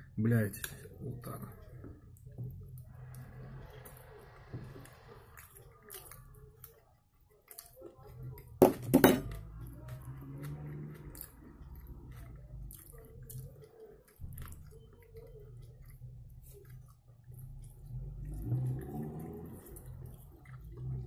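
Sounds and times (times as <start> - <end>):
person chewing food: 0.8 - 21.0.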